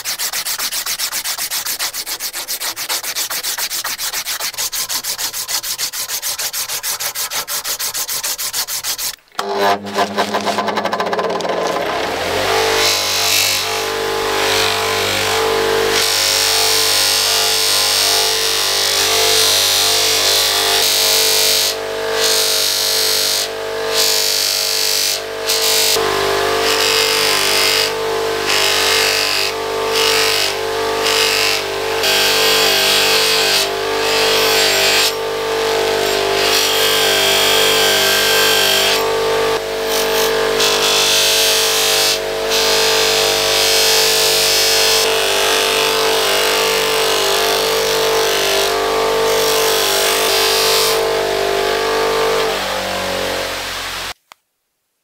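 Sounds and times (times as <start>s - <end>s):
polisher motor hum: 9.4s - 14.4s.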